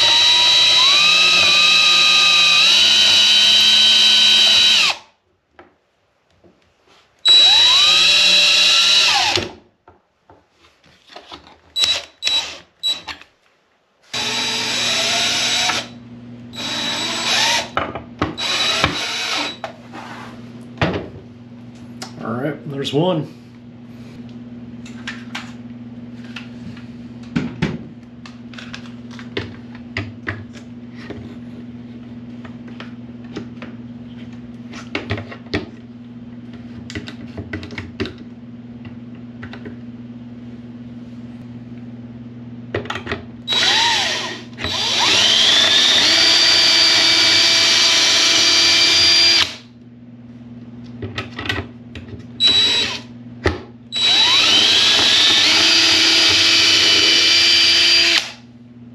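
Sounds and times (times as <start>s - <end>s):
cordless drill whining: 0.0s - 5.0s, 7.3s - 9.5s, 11.8s - 13.1s, 14.1s - 16.0s, 16.6s - 17.8s, 18.4s - 19.6s, 43.5s - 49.6s, 52.4s - 53.1s, 54.0s - 58.4s.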